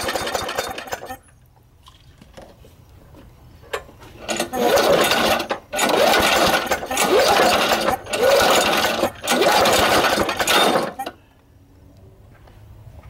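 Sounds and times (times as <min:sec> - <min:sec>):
engine backfire: 0:00.0 - 0:01.2, 0:04.2 - 0:11.2
pull-starter cranking whir: 0:04.2 - 0:11.2.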